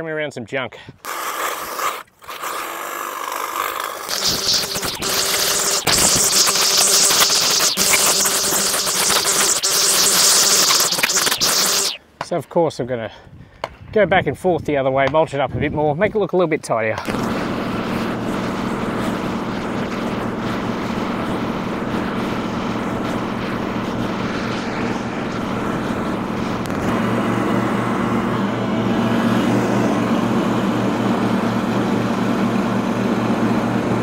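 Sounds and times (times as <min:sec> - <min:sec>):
mower engine running: 0:17.1 - 0:34.0.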